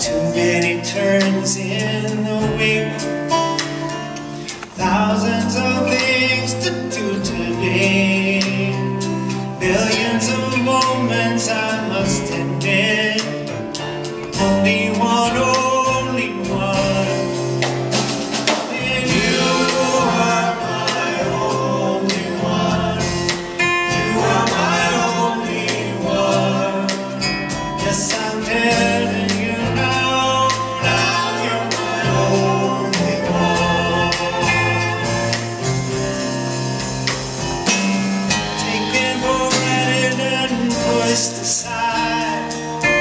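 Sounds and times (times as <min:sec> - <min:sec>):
band playing slow love song: 0:00.0 - 0:43.0.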